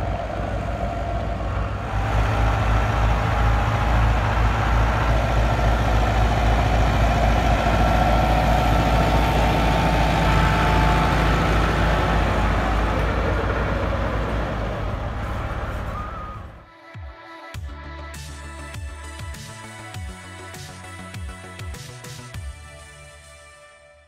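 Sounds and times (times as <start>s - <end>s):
tractor diesel engine under load: 0.0s - 16.6s.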